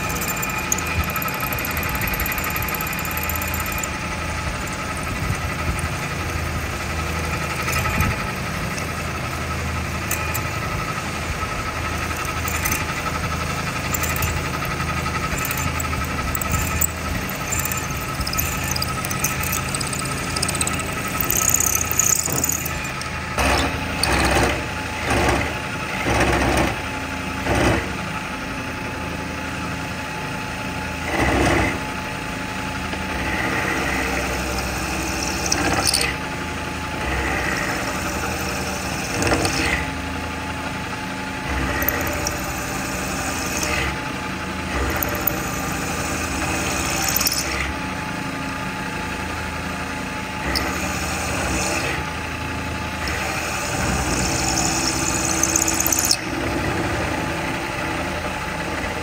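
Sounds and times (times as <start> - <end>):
machine tool motor running: 0.0 - 26.7, 33.1 - 39.9, 40.7 - 47.7, 50.3 - 58.0
metal cutting surges: 9.9 - 24.4.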